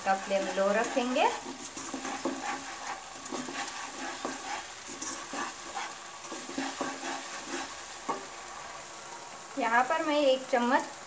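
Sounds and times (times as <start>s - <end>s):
spatula scraping a pan: 0.0s - 8.5s
light frying sizzle: 0.0s - 11.0s.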